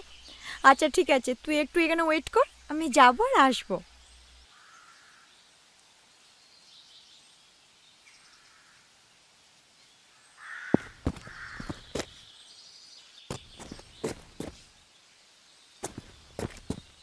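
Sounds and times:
faint bird calls: 4.4s - 5.4s, 10.1s - 12.4s
crow cawing: 4.5s - 5.3s, 8.3s - 8.8s, 10.4s - 11.9s.

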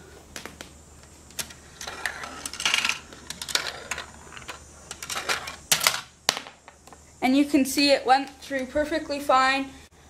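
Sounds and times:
marble clattering down plastic track: 1.4s - 6.6s.

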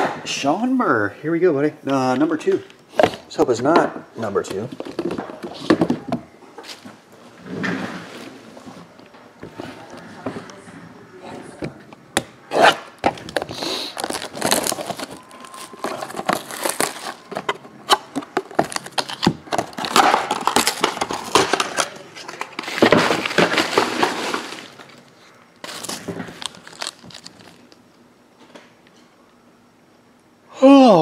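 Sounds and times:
packaging crinkling: 12.6s - 27.8s.

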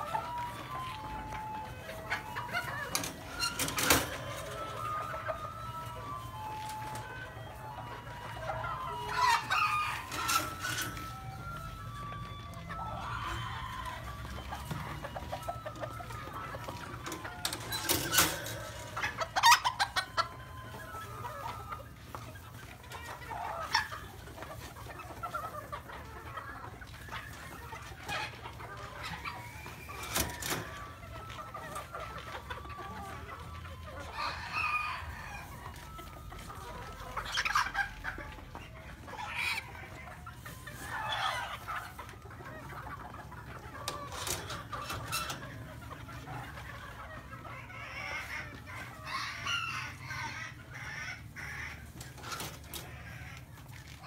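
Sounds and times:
chickens clucking: 0.0s - 54.0s
roosters crowing: 8.4s - 21.6s, 32.7s - 36.0s, 43.6s - 53.4s.

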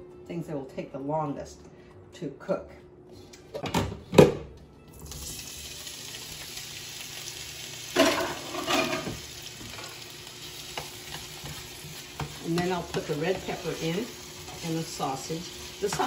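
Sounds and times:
potatoes sizzling in oil: 5.1s - 16.0s.

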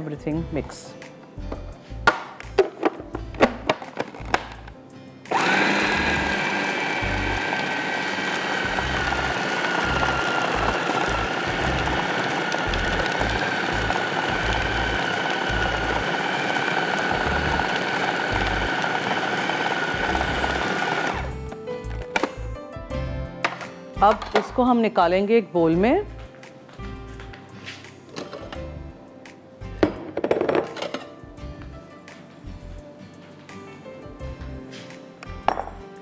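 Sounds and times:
food processor grinding: 5.3s - 21.4s.

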